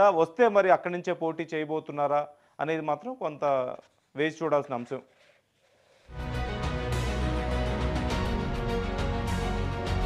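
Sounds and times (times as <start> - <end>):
background music with bass: 6.1 - 10.0.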